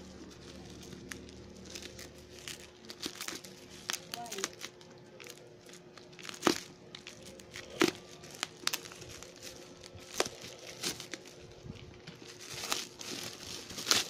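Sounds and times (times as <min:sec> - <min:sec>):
bubble wrap crinkling: 0:00.0 - 0:14.0
plastic cracks and snaps: 0:00.4 - 0:14.0
knife cutting plastic: 0:06.2 - 0:14.0.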